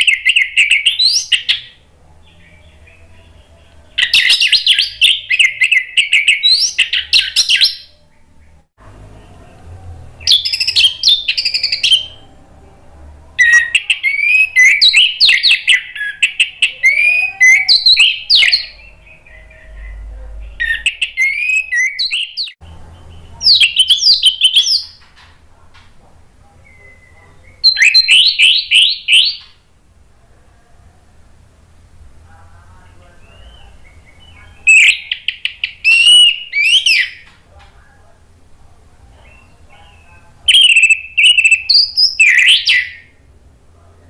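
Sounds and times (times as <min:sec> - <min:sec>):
thrush singing: 0:00.0 - 0:25.0.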